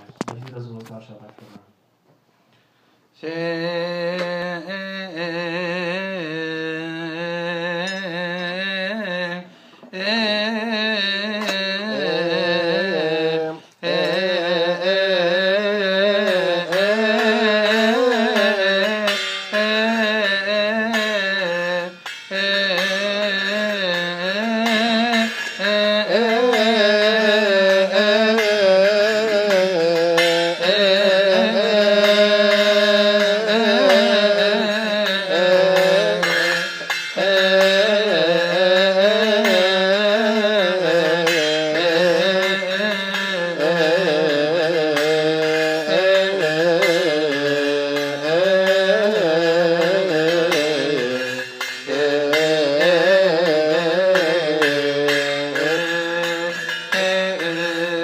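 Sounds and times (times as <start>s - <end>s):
men chanting a hymn: 25.3s - 41.2s.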